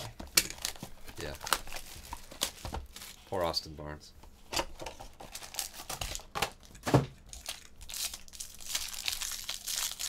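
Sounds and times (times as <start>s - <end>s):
packaging crinkling and tearing: 0.0s - 3.3s, 5.2s - 6.7s, 7.3s - 10.0s.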